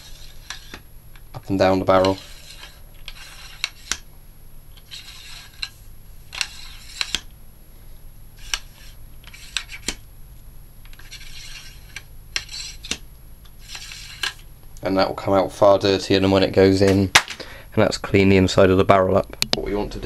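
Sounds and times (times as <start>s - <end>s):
patch scraping through rifle bore: 0.0s - 0.8s, 1.5s - 4.0s, 4.8s - 7.3s, 8.4s - 10.0s, 10.9s - 13.0s, 13.6s - 14.5s.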